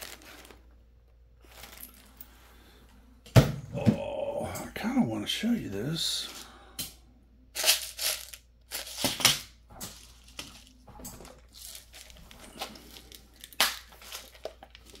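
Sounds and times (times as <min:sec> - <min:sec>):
plastic bags crinkling: 0:00.0 - 0:02.8, 0:07.6 - 0:15.0.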